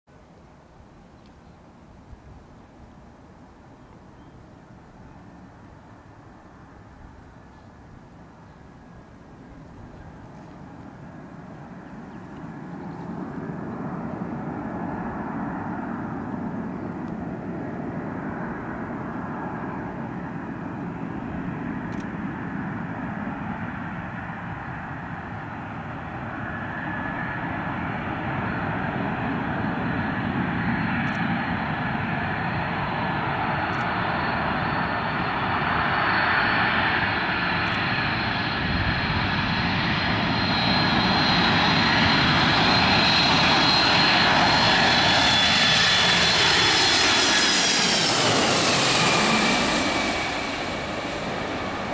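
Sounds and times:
jet airliner engines whining: 0:04.4 - 0:51.9.

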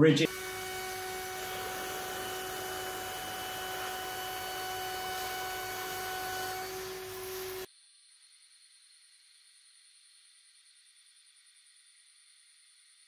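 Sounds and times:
router spindle high-pitched whine: 0:00.0 - 0:07.7.

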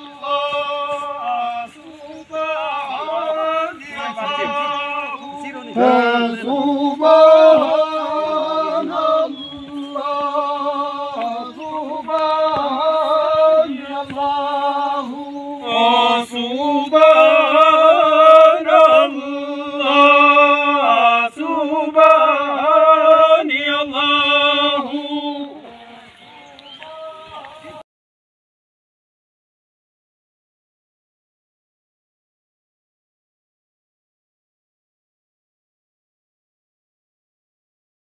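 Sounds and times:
men singing a chant: 0:00.0 - 0:27.8.

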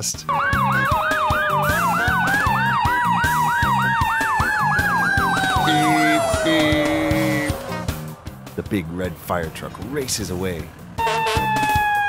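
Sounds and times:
fire truck siren yelp: 0:00.3 - 0:08.4, 0:11.0 - 0:12.0
long rising and falling siren: 0:00.3 - 0:08.4, 0:11.0 - 0:12.0
music with steady beat: 0:00.3 - 0:08.5.

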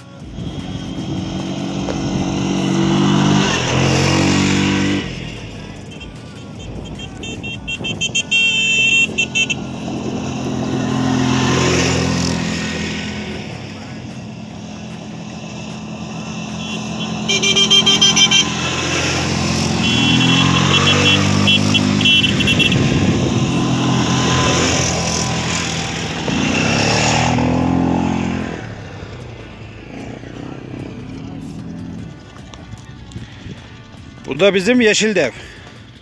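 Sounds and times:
quad bike engines passing: 0:00.0 - 0:36.0
high horn beeps: 0:02.0 - 0:10.4, 0:16.2 - 0:25.8.

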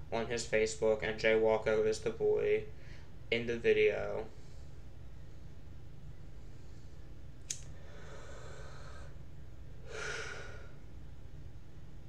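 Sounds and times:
steady low hum: 0:00.0 - 0:12.0
man breathing: 0:02.8 - 0:03.2, 0:07.7 - 0:10.9
sharp click: 0:07.4 - 0:07.7.

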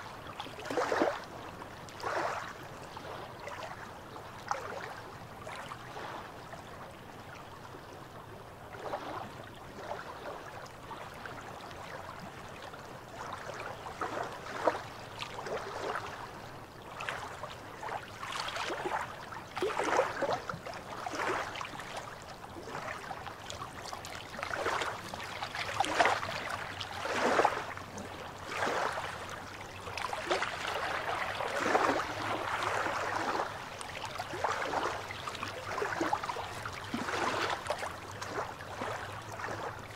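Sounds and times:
waves lapping against rocks: 0:01.9 - 0:03.6, 0:17.0 - 0:39.9.

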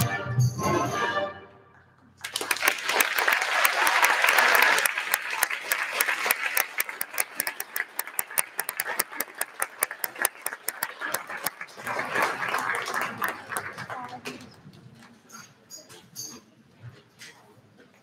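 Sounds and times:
audience applause: 0:02.2 - 0:14.5.

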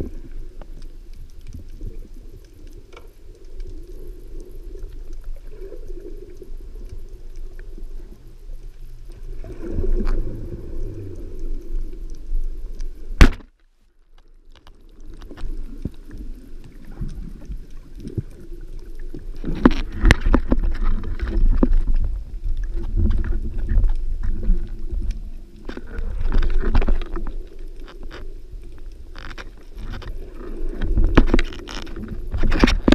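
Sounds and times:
underwater rumble: 0:00.0 - 0:32.9
speargun firing crack: 0:13.2 - 0:13.5.

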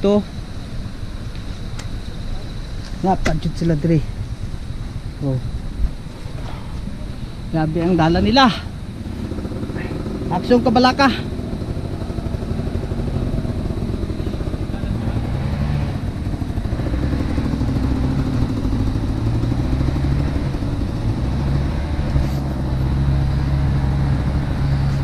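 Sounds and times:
dirt bike engine revving: 0:07.7 - 0:25.0.

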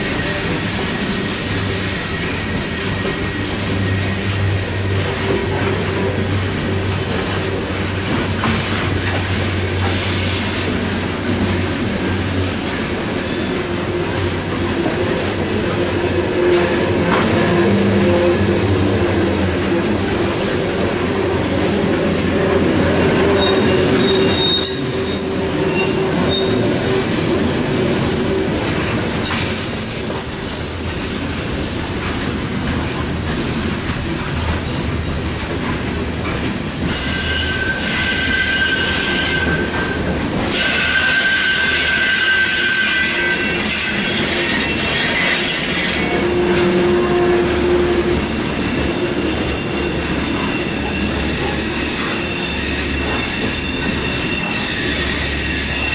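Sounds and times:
train wheels squealing: 0:00.0 - 0:06.4, 0:23.1 - 0:27.1, 0:28.0 - 0:32.0, 0:34.5 - 0:35.8, 0:36.8 - 0:55.9
train wheels rumbling on rails: 0:00.0 - 0:55.9.

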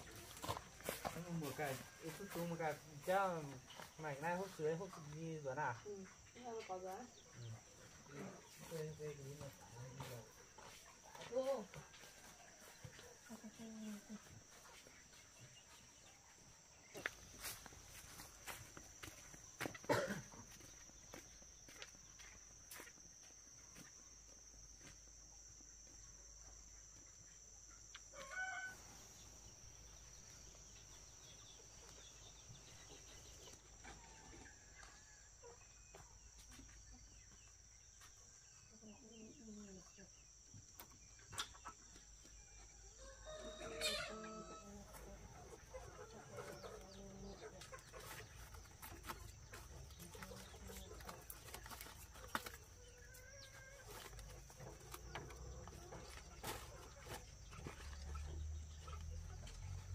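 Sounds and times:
chickens clucking: 0:00.0 - 0:20.9, 0:38.2 - 0:42.7, 0:43.3 - 0:59.9.

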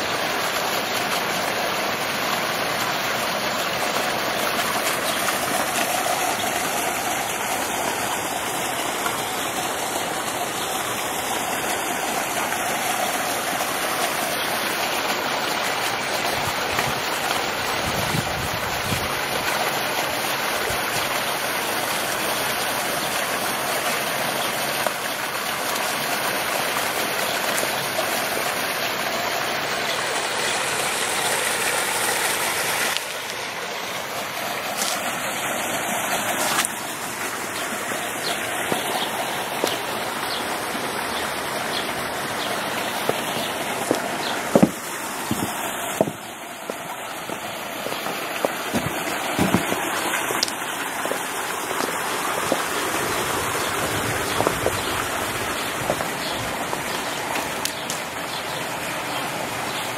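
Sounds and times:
water rushing in stream: 0:00.0 - 0:59.9.

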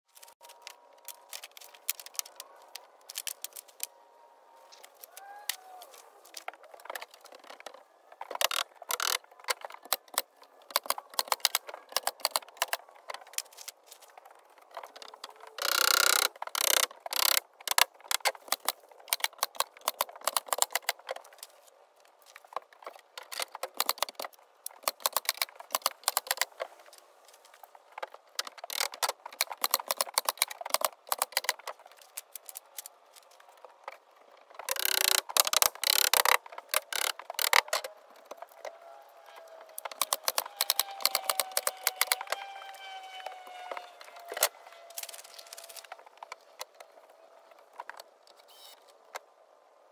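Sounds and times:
wooden boards and tools clattering: 0:06.3 - 0:21.6, 0:22.3 - 0:38.8.

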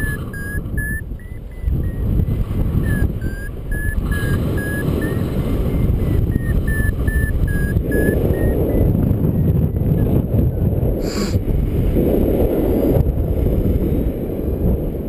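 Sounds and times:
variometer beeps: 0:00.0 - 0:10.6
wind rushing over microphone: 0:00.0 - 0:15.0.

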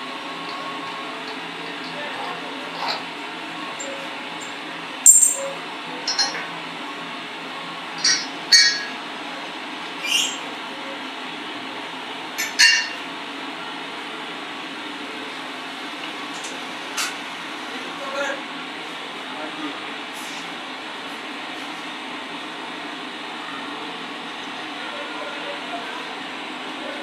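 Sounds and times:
low workshop hum: 0:00.0 - 0:27.0
metal tools clinking: 0:05.0 - 0:06.4.

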